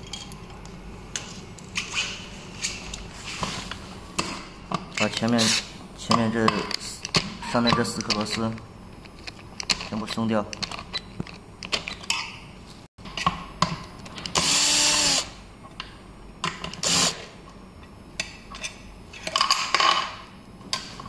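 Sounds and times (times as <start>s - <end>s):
power drill spinning screws: 14.4s - 15.2s, 16.8s - 17.2s.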